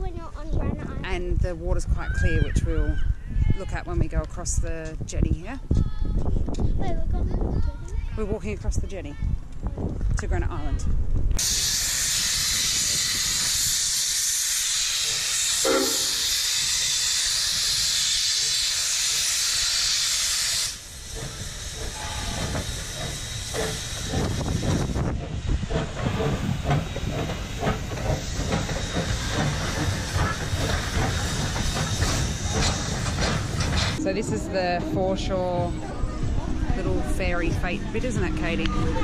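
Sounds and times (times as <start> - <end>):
train rolling rumble: 10.6 - 39.0
steam locomotive hissing: 11.4 - 35.8
wheels clicking and clunking: 21.1 - 34.0.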